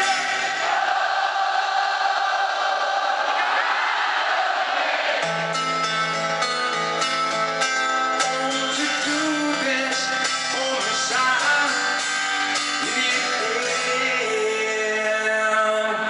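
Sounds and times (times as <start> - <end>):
guitar picking chords: 5.2 - 15.8
man singing: 8.1 - 16.0.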